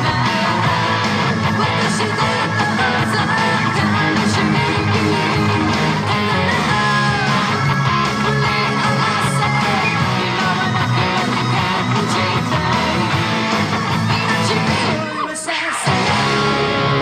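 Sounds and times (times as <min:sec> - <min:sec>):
steady low bass line: 0:00.0 - 0:15.0, 0:15.9 - 0:17.0
full band playing: 0:00.0 - 0:15.2, 0:15.8 - 0:17.0
electric guitar playing rock: 0:00.0 - 0:17.0.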